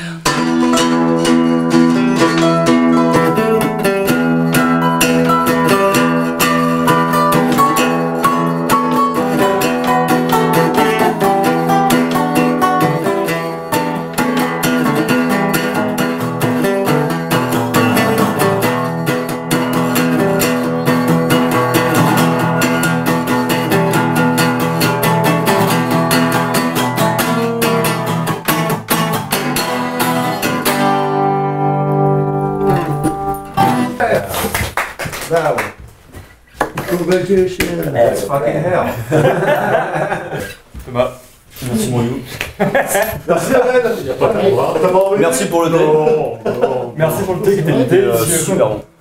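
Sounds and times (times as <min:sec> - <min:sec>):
acoustic and resonator guitars: 0:00.0 - 0:34.7, 0:36.2 - 0:49.0.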